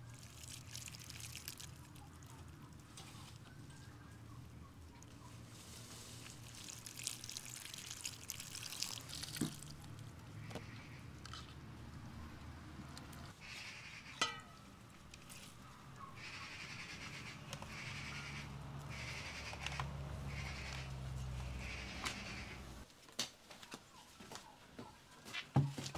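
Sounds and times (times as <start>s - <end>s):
water splashing and trickling: 0.0s - 3.6s, 4.9s - 11.4s.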